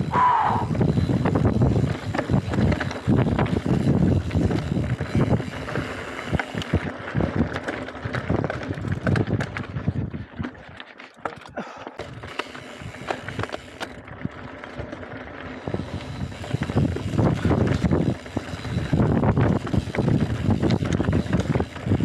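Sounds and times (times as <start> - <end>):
wind buffeting microphone: 0.0 - 10.5, 15.5 - 22.0
bike rattling over rocky trail: 0.0 - 22.0.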